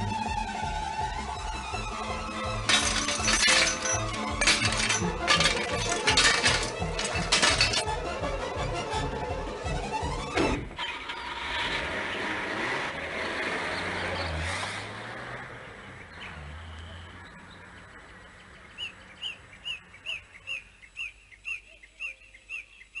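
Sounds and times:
car driving past: 0:11.3 - 0:19.6
bird chirping: 0:15.8 - 0:23.0.

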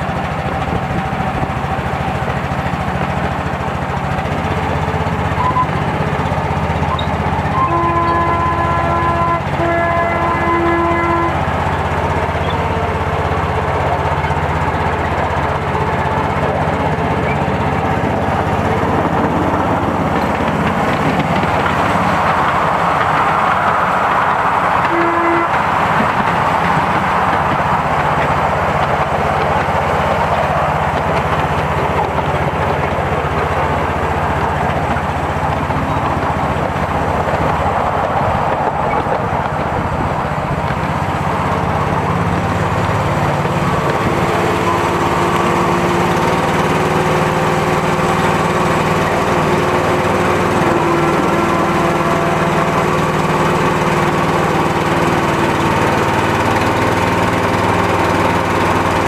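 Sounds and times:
miniature train rolling rumble: 0:00.0 - 0:59.0
horn-like tone: 0:06.9 - 0:11.6, 0:24.8 - 0:25.8.

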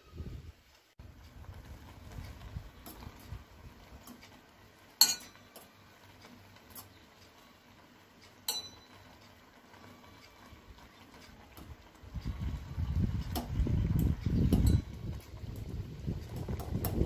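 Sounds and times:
utensil clinking against metal pot: 0:05.0 - 0:05.7, 0:08.4 - 0:09.0.

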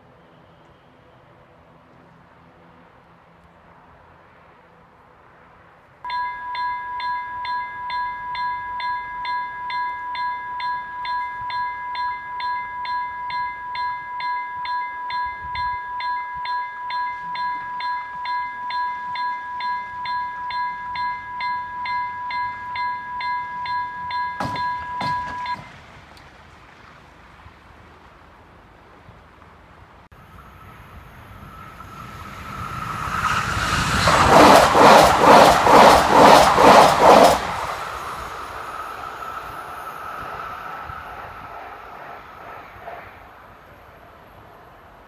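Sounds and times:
level-crossing bell ringing: 0:06.1 - 0:25.6
sharp knock: 0:24.4 - 0:25.7.

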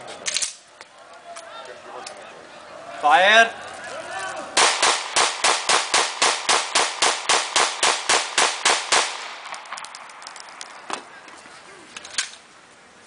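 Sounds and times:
pistol shots: 0:04.6 - 0:10.7.

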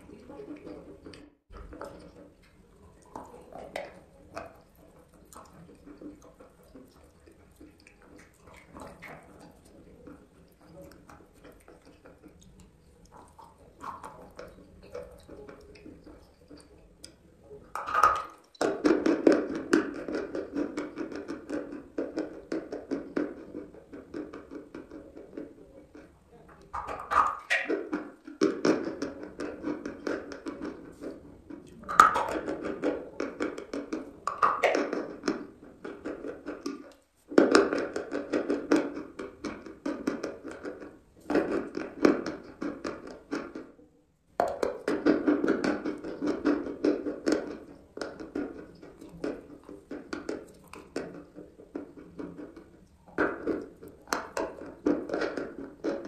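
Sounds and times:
chalk being chewed and crunched: 0:02.4 - 0:17.2.

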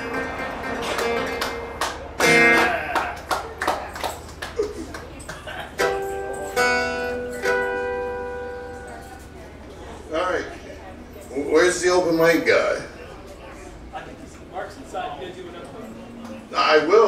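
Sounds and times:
guitar plucked notes and chords: 0:00.0 - 0:03.0, 0:05.8 - 0:09.1.

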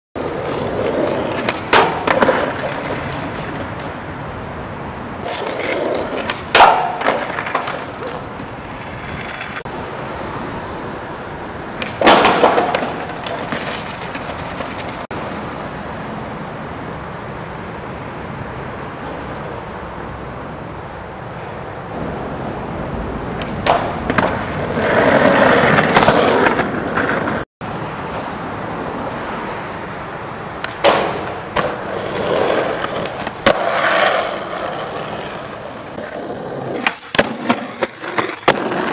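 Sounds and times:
skateboard clacking: 0:00.2 - 0:04.0, 0:05.2 - 0:09.7, 0:11.6 - 0:15.1, 0:23.3 - 0:27.4, 0:30.4 - 0:38.9
skateboard wheels rolling on asphalt: 0:00.2 - 0:38.9.

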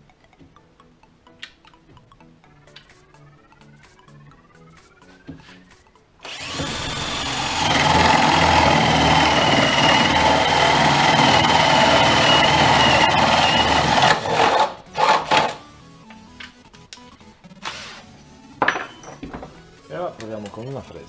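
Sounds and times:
drill boring through wood: 0:06.2 - 0:15.6.

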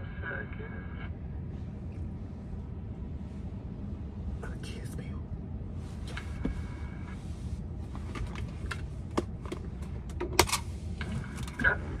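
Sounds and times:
car cabin rumble: 0:01.5 - 0:12.0.

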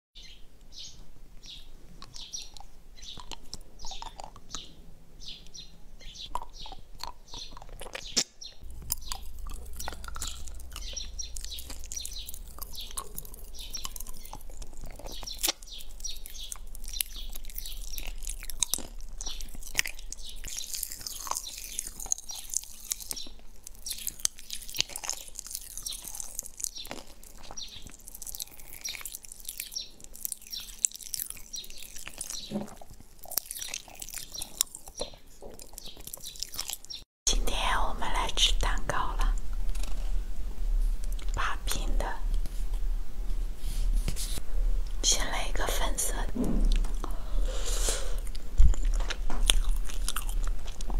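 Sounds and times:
wet mouth licking and sucking: 0:02.0 - 0:04.6, 0:06.2 - 0:37.0, 0:46.7 - 0:50.9
lollipop crunching: 0:06.3 - 0:37.0, 0:48.1 - 0:50.9.

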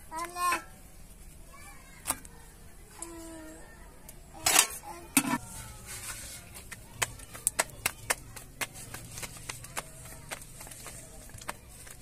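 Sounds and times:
dough slapped between palms: 0:06.6 - 0:12.0.

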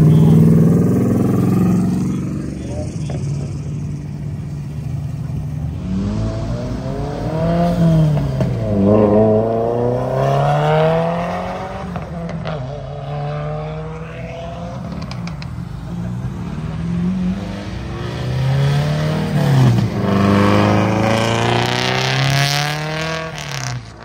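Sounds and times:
car engine accelerating: 0:00.0 - 0:24.0.

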